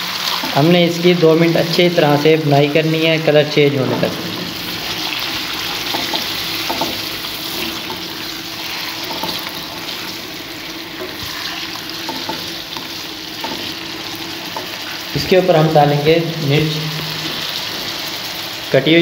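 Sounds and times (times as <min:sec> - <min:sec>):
chicken sizzling in a pan: 0:00.0 - 0:19.0
spatula scraping a pan: 0:03.8 - 0:15.3.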